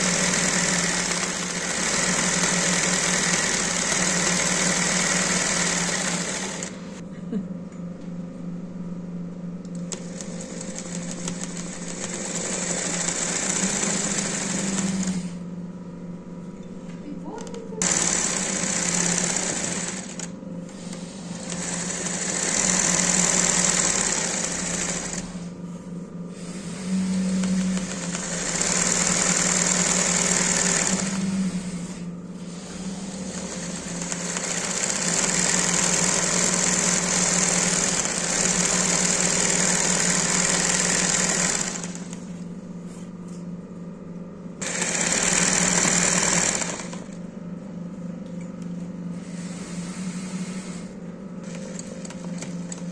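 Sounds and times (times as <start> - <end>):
embroidery machine stitching: 0.0 - 7.0, 9.8 - 15.4, 17.8 - 25.5, 26.4 - 42.2, 44.6 - 47.2, 49.3 - 52.9.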